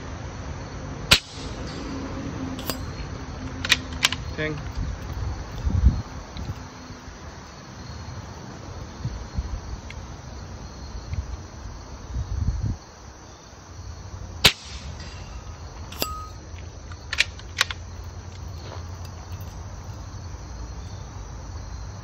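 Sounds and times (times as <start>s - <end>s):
air rifle shot crack: 1.1s - 2.0s, 14.4s - 15.4s.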